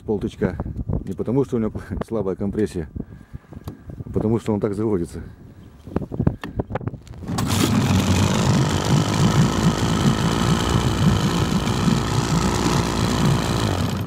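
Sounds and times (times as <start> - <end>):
outboard motor idling: 7.2 - 14.0.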